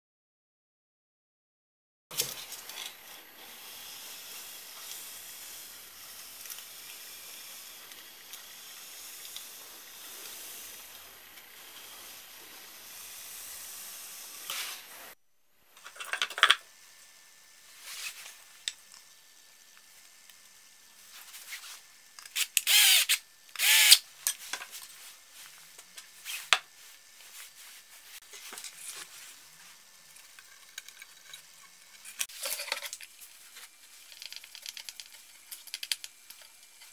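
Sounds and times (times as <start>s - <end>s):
steady hiss: 2.2s - 15.8s
hand tool bursts: 22.3s - 24.0s.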